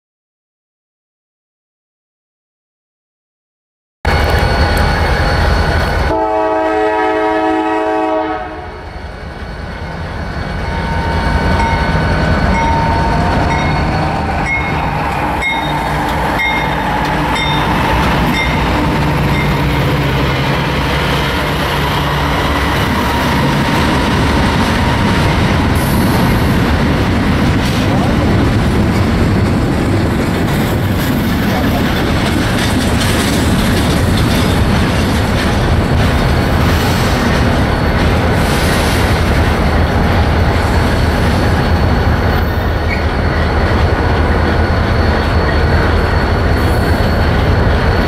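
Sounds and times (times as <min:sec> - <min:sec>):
diesel locomotive engine drone: 0:04.1 - 0:48.0
train horn blast: 0:06.1 - 0:09.0
train wheels clattering on rails: 0:10.6 - 0:48.0.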